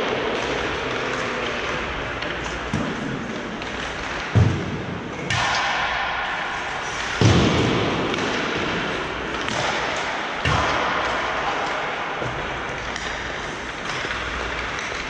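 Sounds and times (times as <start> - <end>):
echoing hockey game noise: 0.0 - 15.0
heavy thuds against rink boards: 0.1 - 15.0.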